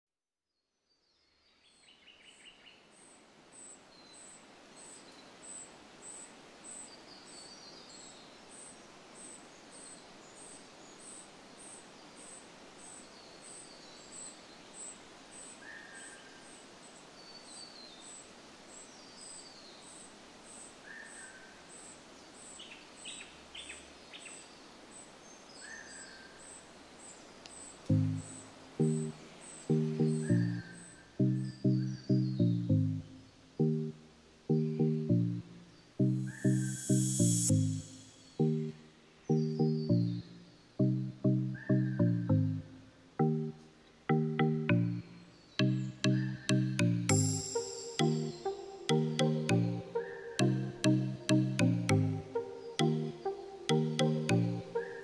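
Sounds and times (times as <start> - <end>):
soft hiss: 1.0 - 32.1, 33.0 - 39.4, 47.1 - 48.8
bird calls: 27.5 - 33.9, 45.4 - 55.0
music: 27.9 - 55.0
insect chirping: 33.0 - 40.7, 45.1 - 49.1.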